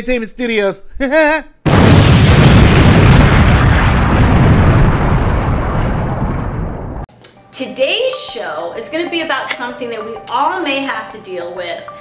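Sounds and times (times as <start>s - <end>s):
explosion blast: 1.7s - 7.1s.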